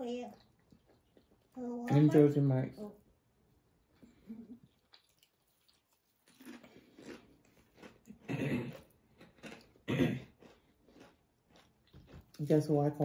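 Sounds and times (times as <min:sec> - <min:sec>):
crunchy chewing: 0:04.6 - 0:12.6.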